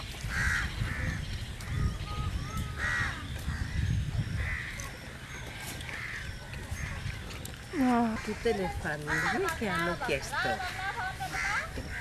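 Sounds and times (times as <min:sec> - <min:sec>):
low rumble on microphone: 0:00.0 - 0:08.9
crows cawing: 0:00.3 - 0:01.8, 0:02.7 - 0:03.8, 0:06.0 - 0:06.9, 0:08.2 - 0:09.6, 0:10.6 - 0:12.0.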